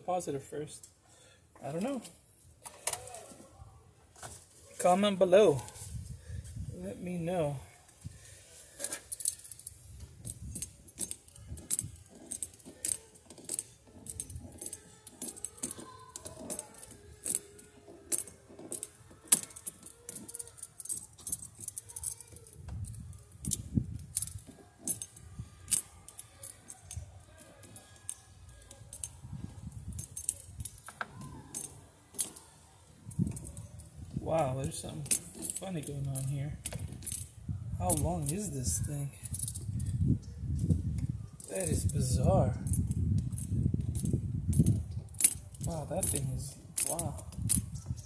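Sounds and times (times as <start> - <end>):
pliers clicking on metal: 8.8 - 32.5, 42.6 - 48.0.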